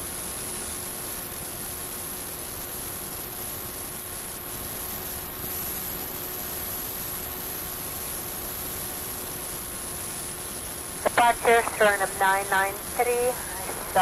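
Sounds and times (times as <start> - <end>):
steady hiss: 0.1 - 14.0
thin high whine: 11.0 - 14.0.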